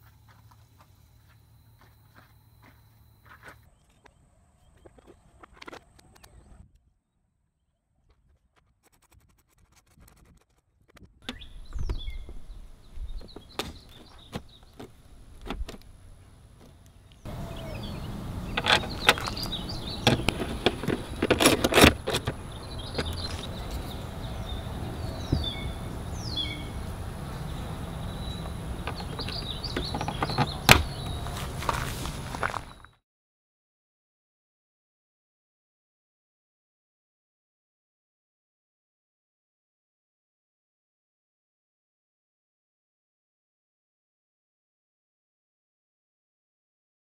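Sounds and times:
outdoor background noise: 0.0s - 33.0s.

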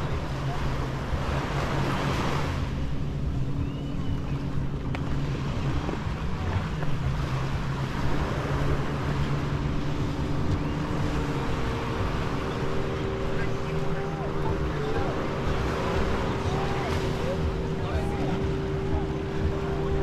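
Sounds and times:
low engine drone: 0.0s - 20.0s
surf washing up beach: 5.1s - 20.0s.

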